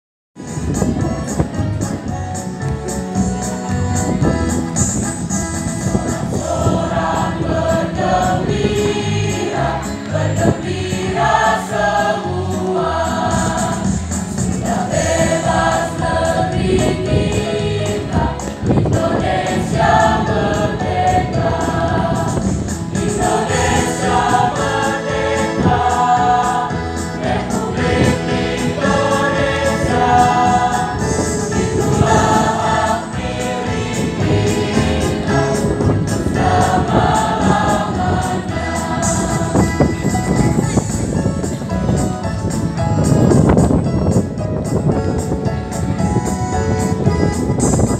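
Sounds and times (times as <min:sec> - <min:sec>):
electronic keyboard: 0:00.4 - 0:47.9
children's choir singing: 0:05.6 - 0:41.0.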